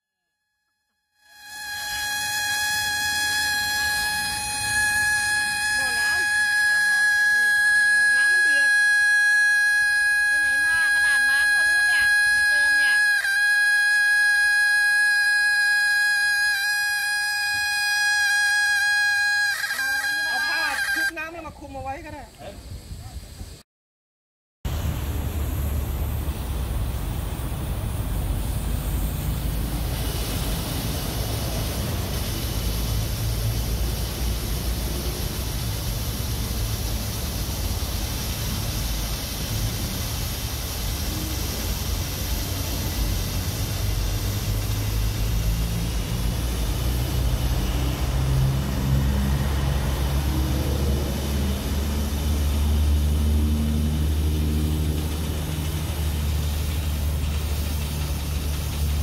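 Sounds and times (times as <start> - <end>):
steam hissing: 1.2 - 23.6, 24.7 - 59.0
steady low drone: 24.7 - 59.0.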